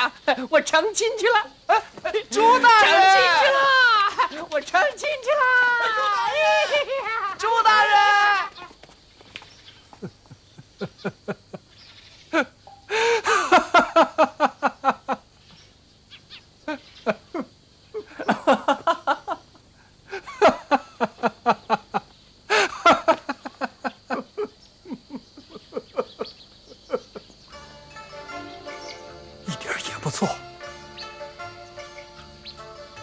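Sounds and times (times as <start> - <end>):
men laughing heartily: 1.7 - 8.8, 9.9 - 15.3, 16.7 - 27.4, 29.4 - 30.5.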